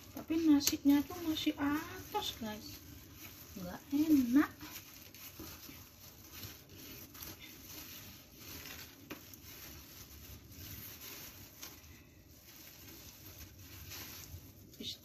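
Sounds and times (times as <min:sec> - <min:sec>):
bamboo mat rustling and clicking: 0:00.0 - 0:11.9.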